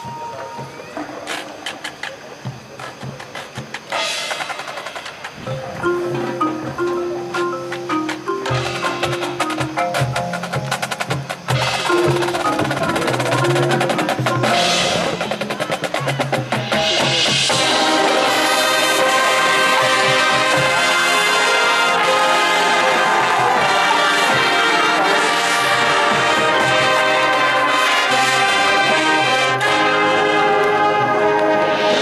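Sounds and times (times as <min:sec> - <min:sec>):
drums and mallet percussion: 0:00.0 - 0:29.8
marching band sustained brass chord: 0:16.8 - 0:32.0.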